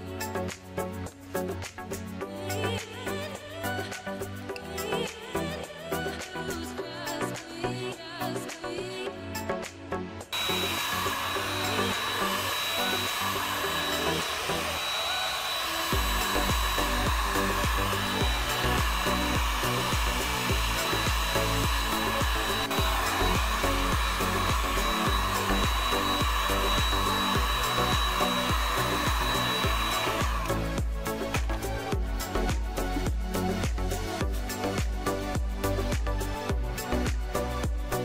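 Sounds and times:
background music with bass beat: 0.0s - 10.4s, 16.0s - 38.0s
hot-air blower whining: 10.4s - 31.9s.

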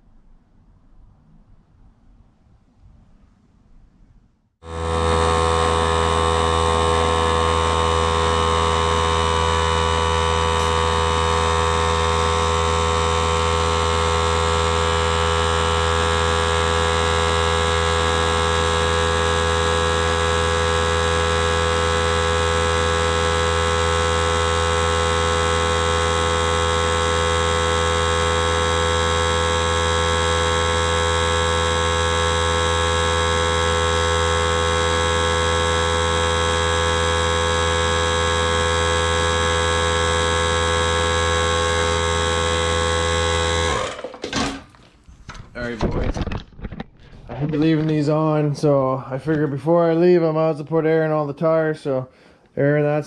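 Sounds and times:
air compressor motor hum: 4.6s - 46.1s.

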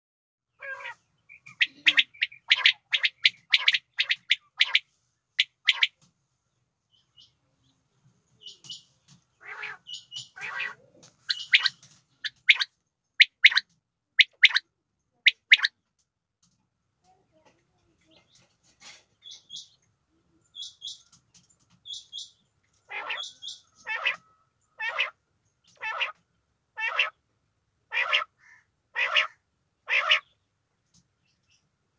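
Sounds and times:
quail calling: 0.5s - 6.0s, 8.4s - 14.6s, 15.2s - 15.8s, 21.9s - 26.2s, 26.8s - 27.2s, 27.9s - 30.4s.

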